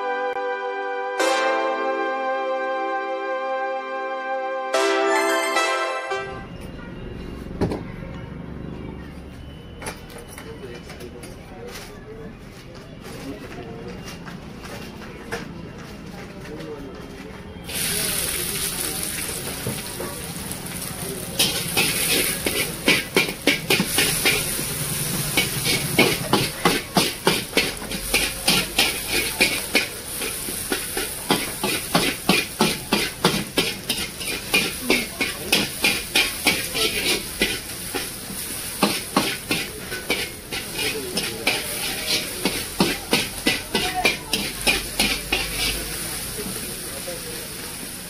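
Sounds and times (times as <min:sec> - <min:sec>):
onions sizzling in pan: 0:17.7 - 0:48.0
metal spatula scraping wok: 0:21.4 - 0:46.0.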